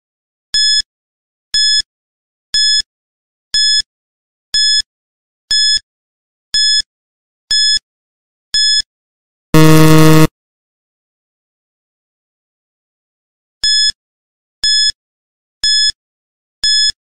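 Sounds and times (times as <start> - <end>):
countdown timer beeping: 9.6 - 10.3.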